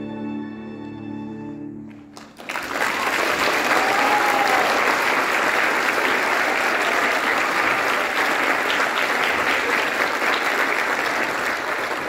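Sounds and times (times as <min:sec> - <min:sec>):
audience applauding: 0:01.9 - 0:12.0.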